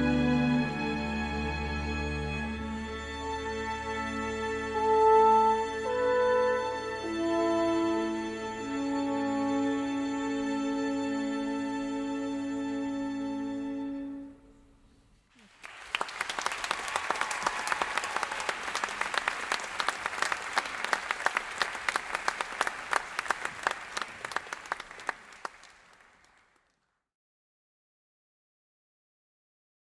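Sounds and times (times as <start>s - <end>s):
audience applause: 15.4s - 26.7s.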